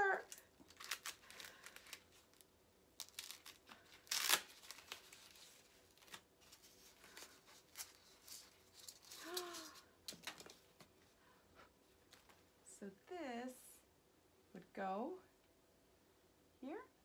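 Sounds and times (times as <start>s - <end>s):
packaging rustling: 0.2s - 10.9s
packaging ripping: 0.3s - 2.4s, 3.0s - 10.4s.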